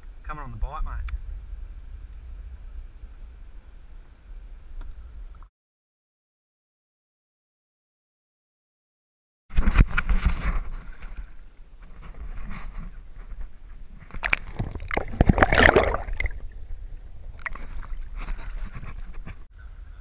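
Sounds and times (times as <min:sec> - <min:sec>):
river water splashing: 0:14.0 - 0:19.2.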